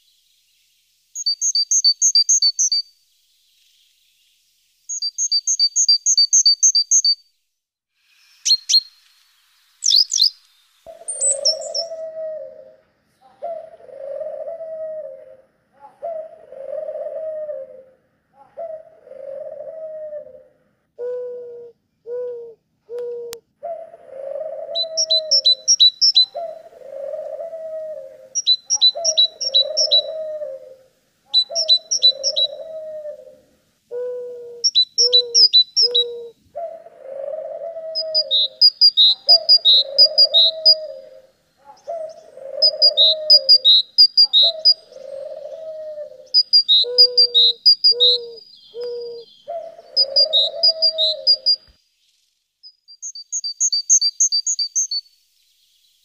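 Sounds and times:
small bird chirping: 0:00.0 - 0:07.3, 0:08.0 - 0:17.8, 0:24.3 - 0:36.4, 0:37.5 - 0:56.0
dove cooing: 0:10.9 - 0:51.6.

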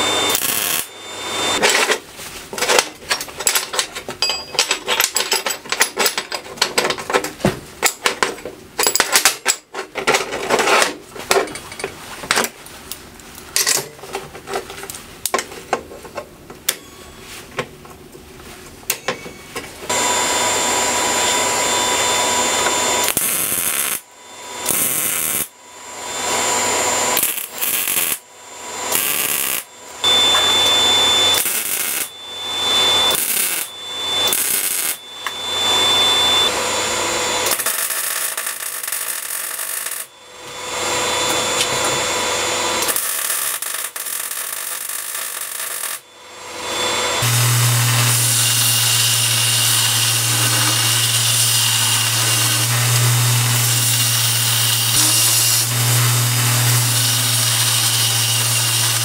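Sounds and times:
welder crackling: 0:00.0 - 0:00.9, 0:22.9 - 0:24.0, 0:24.6 - 0:25.5, 0:27.1 - 0:28.2, 0:28.9 - 0:36.6, 0:37.4 - 0:40.1, 0:42.8 - 0:46.0, 0:47.2 - 0:59.0
steel bars and nuts clanking: 0:02.6 - 0:07.3.

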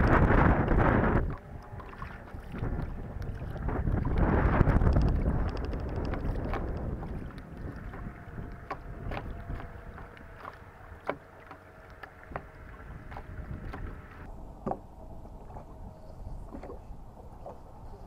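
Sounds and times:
low rumble of wind and water: 0:00.0 - 0:18.0
scattered clicks and knocks: 0:04.8 - 0:07.4.

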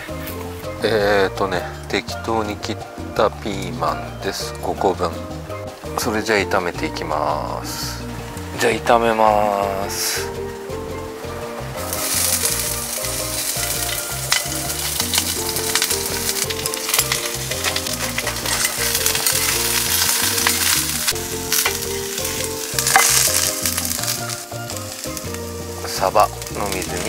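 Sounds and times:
peppers sizzling in frying pan: 0:03.5 - 0:27.0
stirring clicks and scrapes: 0:11.9 - 0:25.4.

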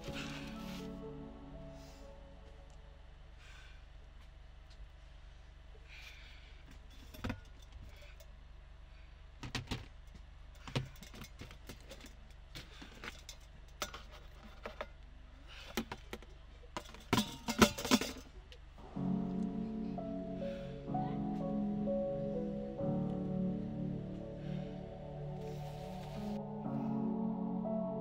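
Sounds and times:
soft music: 0:00.0 - 0:03.4, 0:18.8 - 0:28.0.

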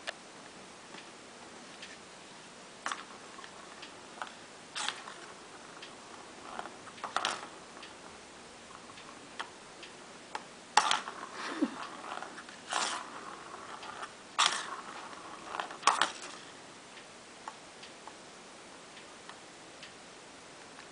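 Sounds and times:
plastic ball rolling in toy track: 0:02.8 - 0:08.1, 0:08.7 - 0:16.6.

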